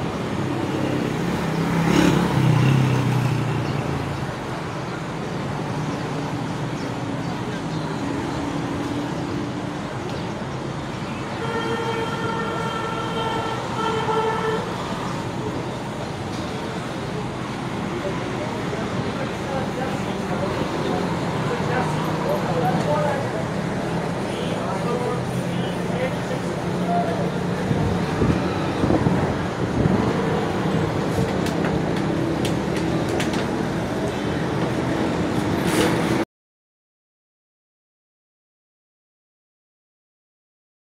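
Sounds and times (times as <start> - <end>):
background traffic noise: 0.0 - 36.2
vehicle horn: 11.4 - 14.8.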